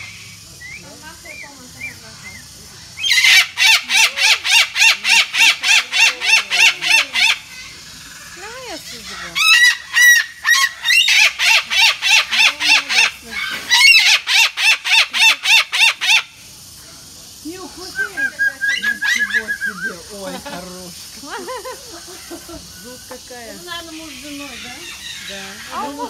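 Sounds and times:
cockatoo screeching: 3.0 - 16.4, 17.9 - 20.0.

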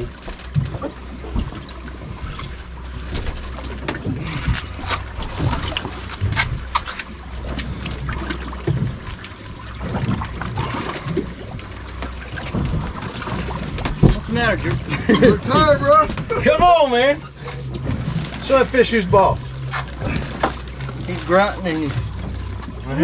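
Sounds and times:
low steady rumble: 0.0 - 23.0
water lapping against boat hull: 0.0 - 23.0.

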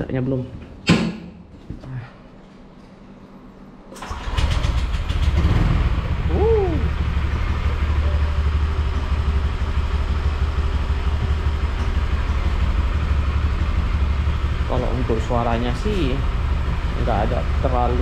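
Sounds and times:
scooter engine starting and idling: 4.0 - 18.0.

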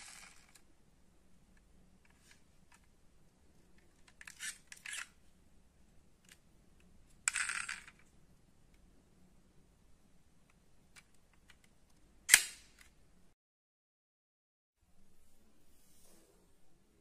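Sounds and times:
model car metallic clicks and rattles: 0.0 - 0.6, 4.0 - 5.1, 7.2 - 8.1.

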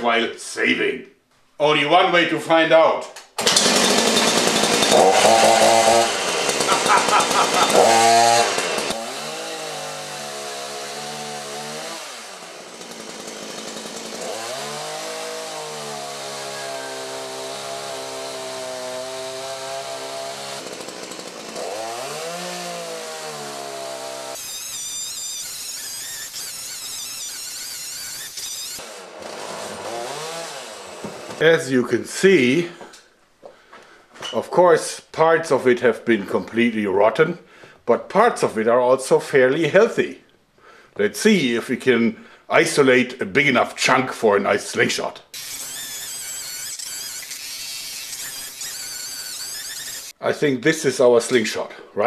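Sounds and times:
chainsaw cutting wood: 3.4 - 31.4, 45.3 - 50.2.

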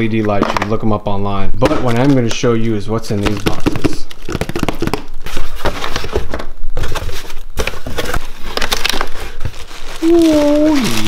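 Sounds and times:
plastic wrap rustling: 3.0 - 11.0
cardboard and tape ripping: 6.9 - 11.0.

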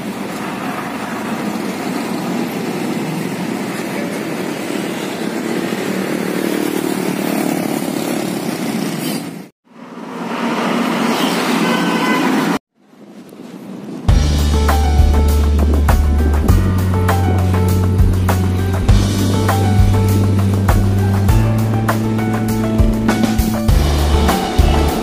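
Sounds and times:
trucks driving past: 0.0 - 25.0.

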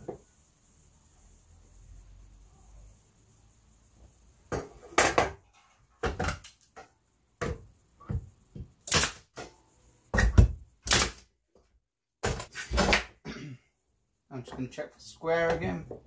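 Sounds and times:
nailer firing with air burst: 8.8 - 9.4, 10.2 - 11.3.

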